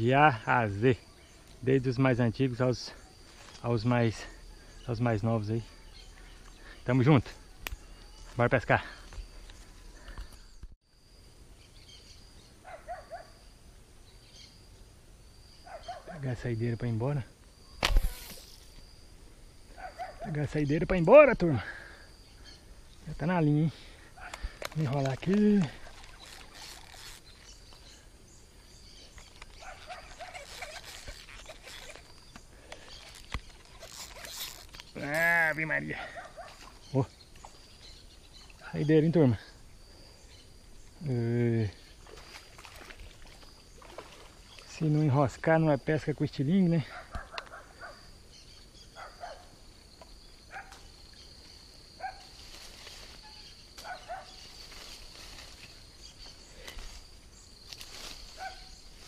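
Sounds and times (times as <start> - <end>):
insects buzzing: 0.0 - 59.0
branches rustling: 2.9 - 10.7, 17.5 - 20.4, 22.1 - 38.7, 50.0 - 59.0
bird chirping: 2.9 - 14.8, 22.1 - 41.1.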